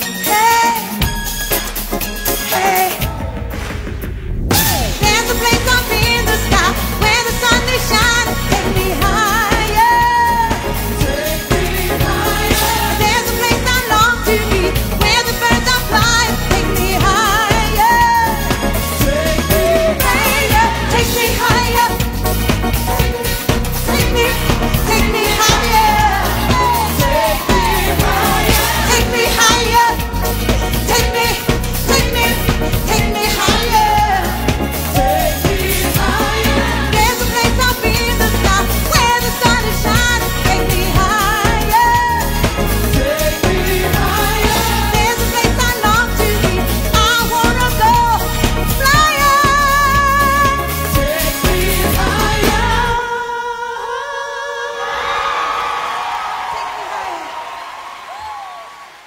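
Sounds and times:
drums: 0.0 - 53.4
live band playing dance-pop: 0.0 - 53.6
person singing with vibrato: 2.3 - 3.5
woman singing: 5.0 - 22.6, 23.2 - 55.0.

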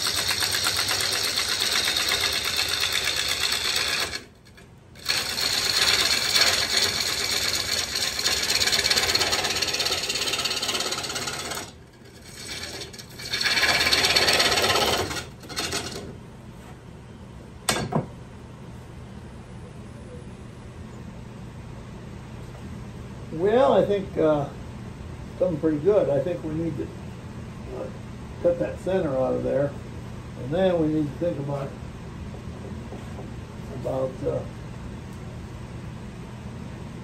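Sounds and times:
lathe gouge shaving wood: 0.0 - 16.1
lathe motor hum: 0.0 - 16.1.

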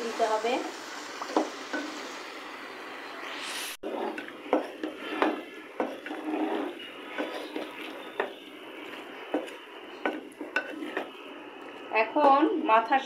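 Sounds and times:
spatula scraping a pan: 3.8 - 11.3
spatula knocking against pan: 4.5 - 6.2, 9.3 - 11.1.

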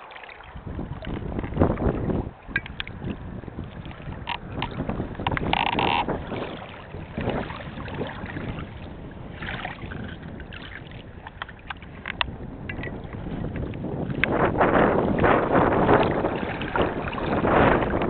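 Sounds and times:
water lapping against rocks: 0.0 - 18.0
wind buffeting microphone: 0.4 - 18.0
small clicks: 4.3 - 6.1.

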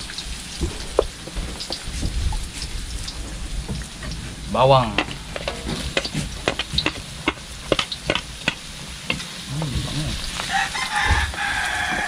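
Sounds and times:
garlic sizzling in hot oil: 0.0 - 12.0
chicken calling: 10.3 - 12.0.

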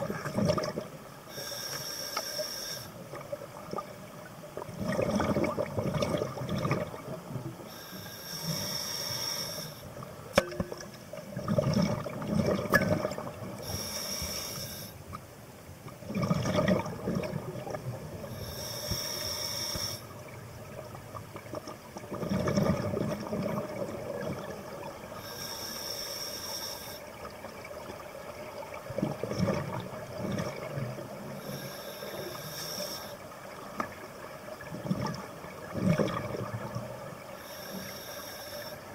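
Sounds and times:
regulator inhalation hiss: 1.3 - 3.0, 7.7 - 9.9, 13.6 - 15.0, 18.3 - 20.1, 25.2 - 27.1, 31.4 - 33.2, 37.4 - 38.9
bubbling exhaled air: 4.7 - 7.2.

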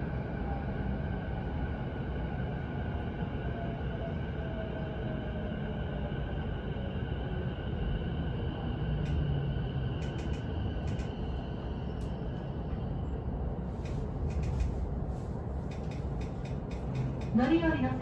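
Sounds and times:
train wheels rumbling on rail: 0.0 - 18.0
scattered clicks: 10.0 - 11.4, 13.8 - 14.8, 15.7 - 17.8.

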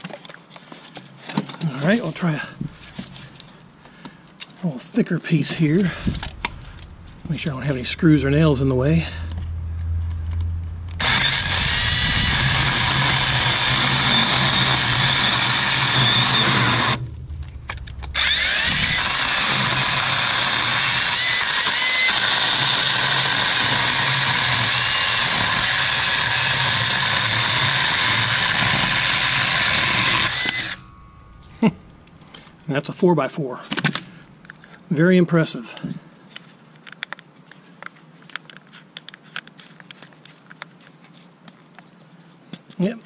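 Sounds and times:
electric chainsaw cutting wood: 10.3 - 17.1, 17.7 - 31.1.

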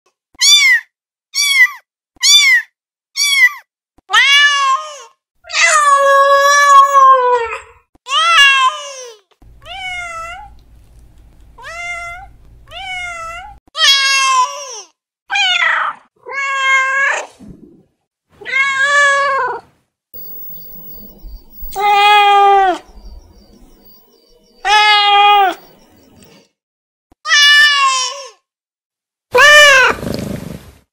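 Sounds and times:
low steady hum: 9.4 - 13.6, 20.2 - 26.4
cat meowing: 9.6 - 10.6.

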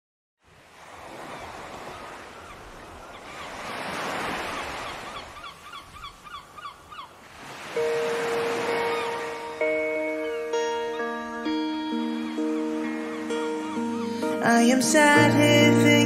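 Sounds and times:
rushing wind or surf: 0.4 - 15.3
short repeated bird-like calls: 1.3 - 7.2.

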